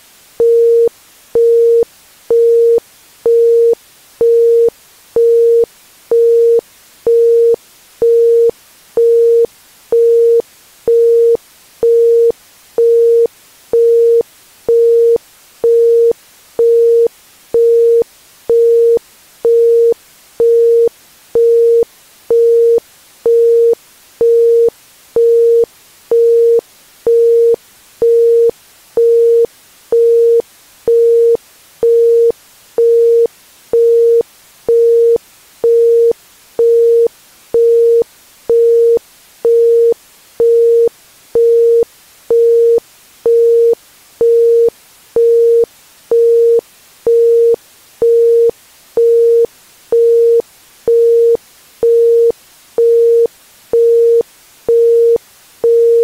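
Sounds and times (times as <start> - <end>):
faint hiss: 0.0 - 56.0.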